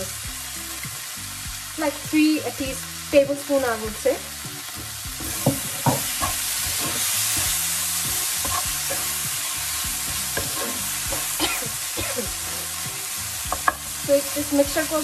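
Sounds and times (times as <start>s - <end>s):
vegetables sizzling in a frying pan: 0.0s - 15.0s
wooden spatula scraping a pan: 5.2s - 11.4s.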